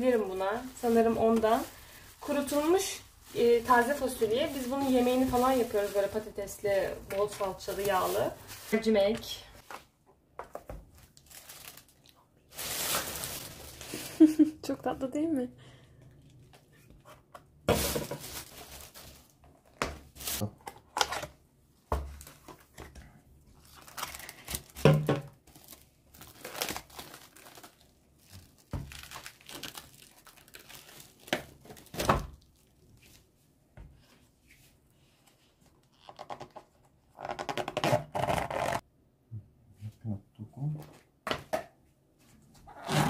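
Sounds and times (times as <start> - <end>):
cling film crinkling and tearing: 11.0 - 14.4, 23.6 - 24.8, 25.4 - 33.2.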